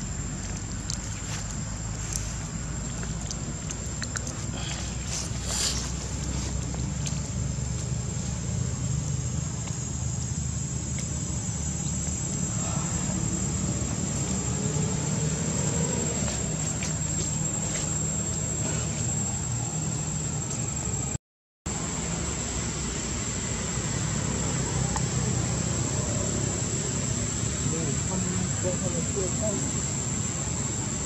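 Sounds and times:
low continuous hum: 0.0s - 21.1s
high insect whine: 0.0s - 31.0s.

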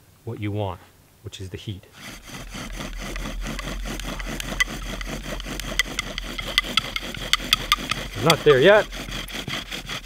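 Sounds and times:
bow drill rubbing wood: 2.0s - 10.0s
wooden spindle squeaks: 2.0s - 10.0s.

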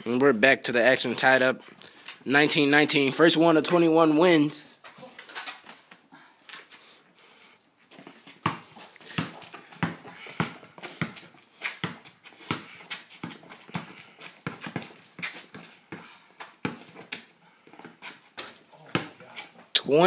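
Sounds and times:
basketball bouncing: 8.4s - 17.2s, 17.8s - 19.3s.

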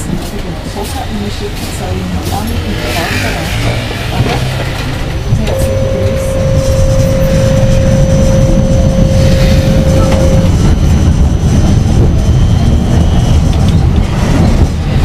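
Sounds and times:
tram rumble: 0.0s - 15.0s
steady high tone: 5.4s - 11.5s.

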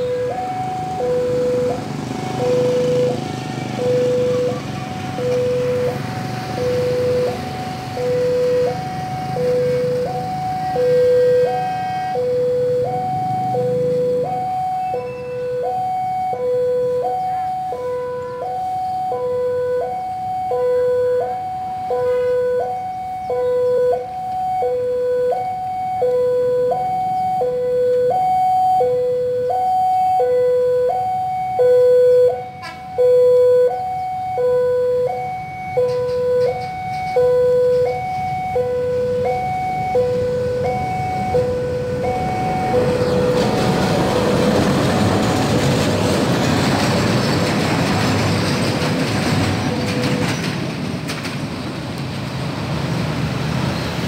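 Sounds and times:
level crossing two-tone alarm: 0.0s - 44.5s
loud rushing noise: 41.9s - 54.0s.

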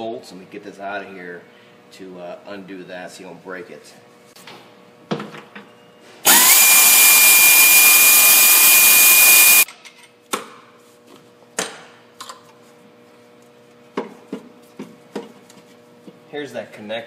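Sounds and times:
air ratchet whining: 6.3s - 9.7s.

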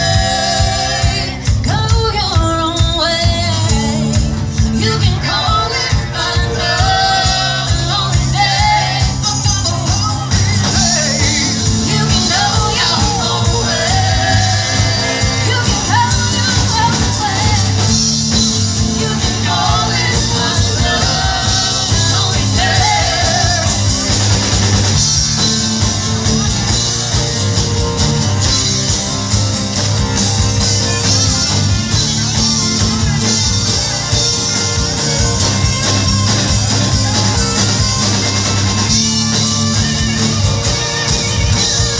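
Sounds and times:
woman singing lead vocal: 0.0s - 18.1s, 18.8s - 24.0s
live rock band playing: 0.0s - 41.9s.

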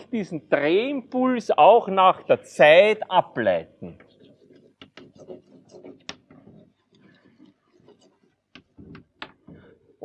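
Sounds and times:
chalk tapping and scratching on blackboard: 4.2s - 9.6s.

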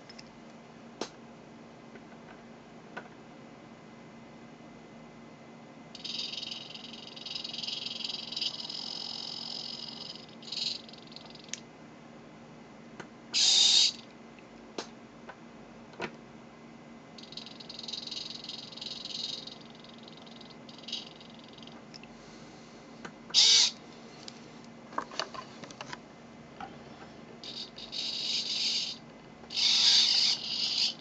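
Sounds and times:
servo motor and gears whining: 27.5s - 31.0s.

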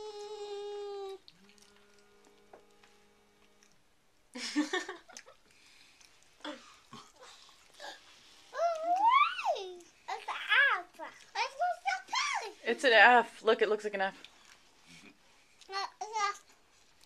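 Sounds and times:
toddler vocal sound: 0.0s - 3.4s, 6.5s - 12.6s
chewing mouth sounds: 1.2s - 3.8s, 5.1s - 7.8s
child's voice rising in pitch: 8.6s - 12.6s.

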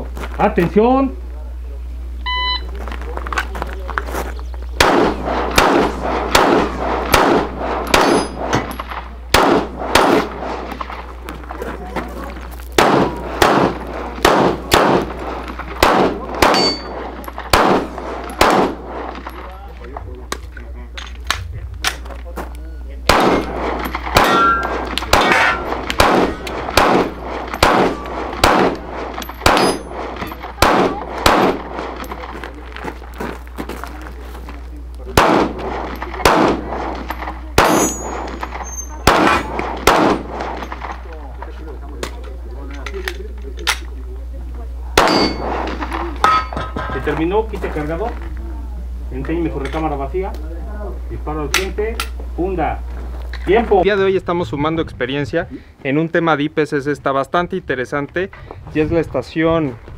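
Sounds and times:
pistol shots with echo: 4.8s - 11.0s, 12.8s - 19.4s, 23.1s - 32.3s, 35.1s - 41.1s, 45.0s - 46.8s.

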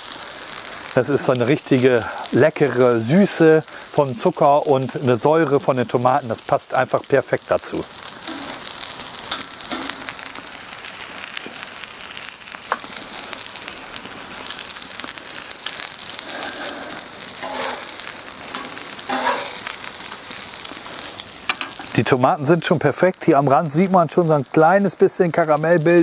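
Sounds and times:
food sizzling on a hot plate: 0.0s - 26.0s
metal spatula scraping a plate: 17.4s - 17.9s, 18.5s - 19.6s.

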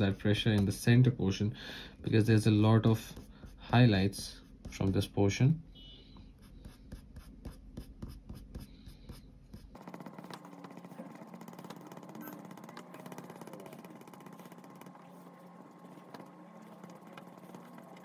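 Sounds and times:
eraser rubbing on paper: 6.4s - 9.8s.

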